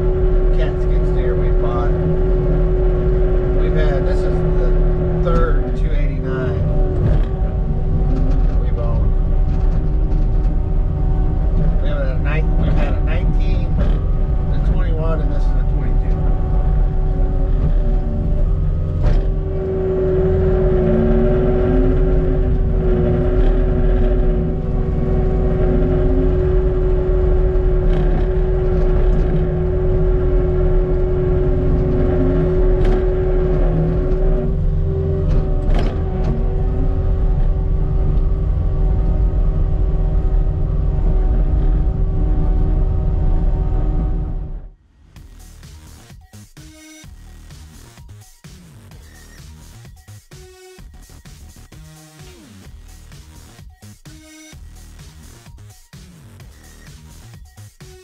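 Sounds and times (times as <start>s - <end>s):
hydraulic whine: 0.0s - 45.6s
diesel engine low drone: 0.0s - 58.0s.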